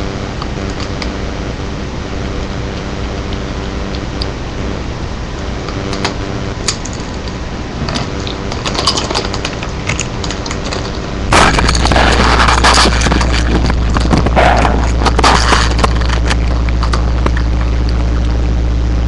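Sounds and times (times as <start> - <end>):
steady low hum: 0.0 - 19.0
loud rustling: 5.9 - 18.2
chips and bag crunching: 7.9 - 18.2.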